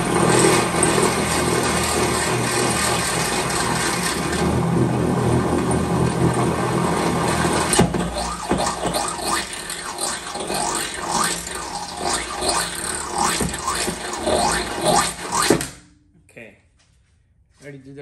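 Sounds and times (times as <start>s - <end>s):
power drill running: 0.0s - 15.9s
drill bit squeaking on metal: 7.7s - 15.8s.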